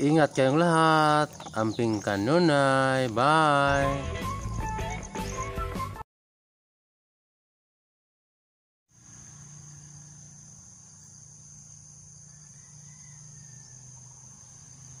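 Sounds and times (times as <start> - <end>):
insect chorus trilling: 0.0 - 5.4, 8.9 - 15.0.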